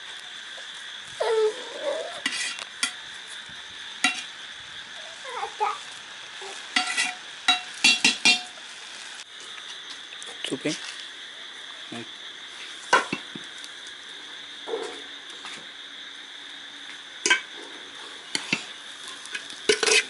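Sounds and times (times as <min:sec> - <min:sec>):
spoon scraping rice in metal pot: 0:02.2 - 0:02.6, 0:06.8 - 0:07.2, 0:18.3 - 0:18.7, 0:19.7 - 0:20.0.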